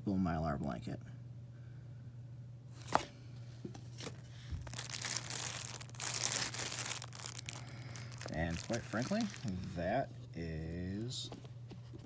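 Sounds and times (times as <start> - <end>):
plastic packaging crinkling: 4.0 - 9.7.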